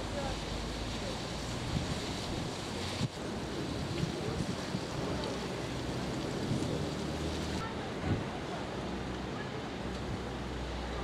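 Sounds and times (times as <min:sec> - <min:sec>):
wheels splashing through floodwater: 0:00.0 - 0:11.0.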